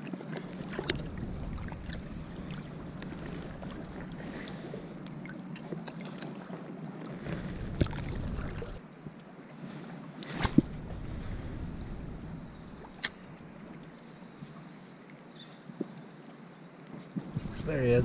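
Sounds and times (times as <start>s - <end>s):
water sloshing and splashing: 0.0s - 8.8s, 10.2s - 14.0s
wind rumbling on microphone: 0.4s - 5.8s, 6.9s - 8.8s, 10.4s - 14.5s, 17.2s - 18.0s.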